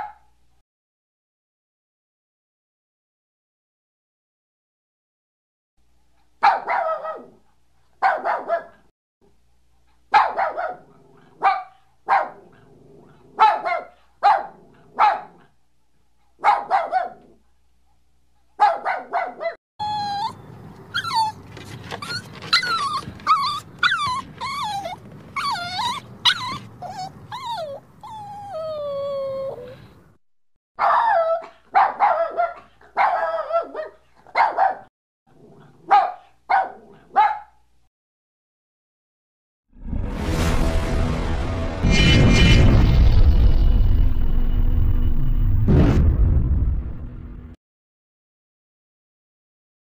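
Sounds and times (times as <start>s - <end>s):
dog barking: 0.0s - 0.3s, 6.4s - 7.4s, 8.0s - 8.9s, 10.1s - 15.6s, 16.4s - 17.4s, 18.6s - 19.6s, 30.8s - 34.9s, 35.8s - 37.6s
dog whining and whimpering: 19.8s - 30.0s.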